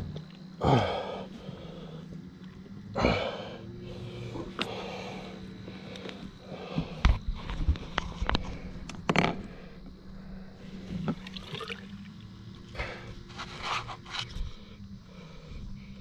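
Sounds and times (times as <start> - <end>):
steady low hum: 0.0 - 16.0
water sloshing and splashing: 10.8 - 12.2.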